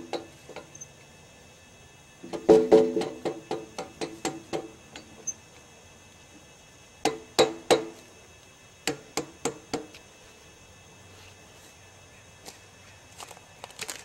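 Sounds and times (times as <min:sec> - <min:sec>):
hammer striking log: 0:02.3 - 0:04.7.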